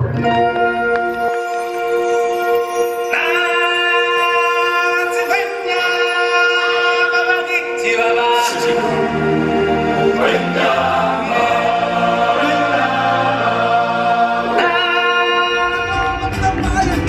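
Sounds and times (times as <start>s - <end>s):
musical accompaniment: 0.0s - 17.0s
choir singing sustained chords: 1.6s - 16.0s.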